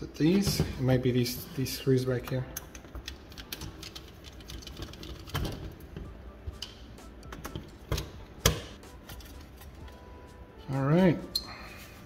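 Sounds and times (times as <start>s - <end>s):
metal parts clicking and tapping: 2.2s - 9.6s.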